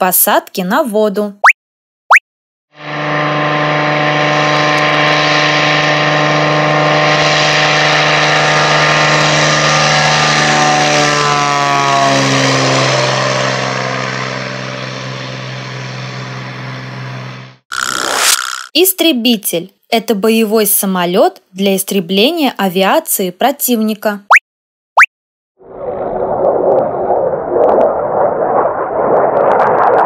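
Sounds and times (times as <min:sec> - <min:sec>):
propeller plane engine at full power: 0:02.8 - 0:17.6.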